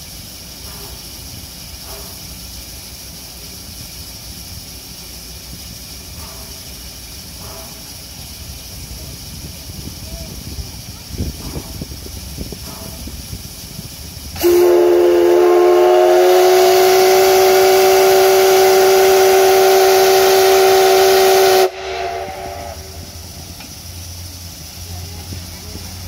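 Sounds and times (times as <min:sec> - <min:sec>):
steam hissing: 0:00.0 - 0:26.0
steam locomotive whistle: 0:14.4 - 0:23.3.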